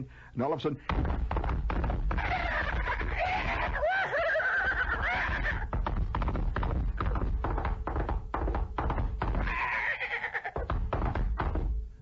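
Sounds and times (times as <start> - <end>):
galloping hooves: 0.9 - 12.0
horses whinnying: 2.1 - 5.7, 9.2 - 10.7.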